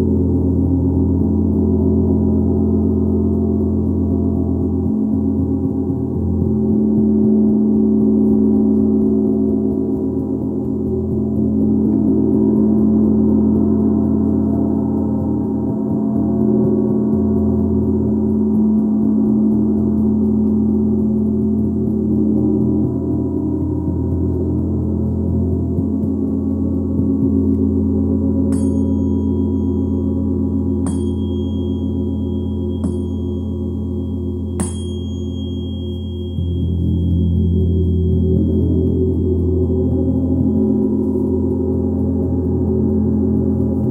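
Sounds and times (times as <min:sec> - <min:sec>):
gong droning: 0:00.0 - 0:43.9
small metal instrument ringing: 0:28.4 - 0:41.6.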